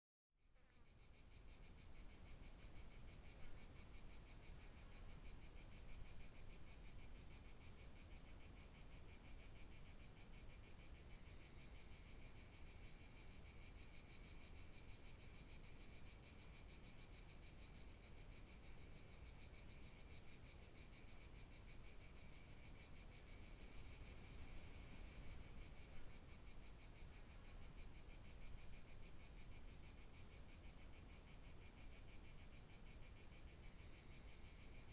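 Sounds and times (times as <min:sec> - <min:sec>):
lower insect trill: 0:00.4 - 0:34.9.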